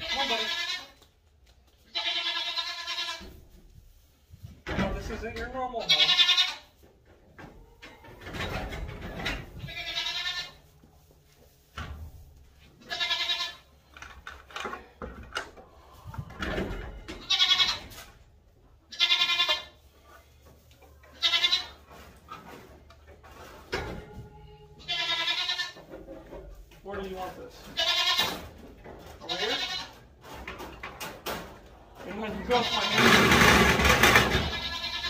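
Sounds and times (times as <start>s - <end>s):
young goat bleating: 0.0s - 1.0s, 1.8s - 3.3s, 5.8s - 6.7s, 9.6s - 10.6s, 12.8s - 13.7s, 17.2s - 17.9s, 18.9s - 19.8s, 21.1s - 21.8s, 24.6s - 25.8s, 27.7s - 28.3s, 34.4s - 35.0s.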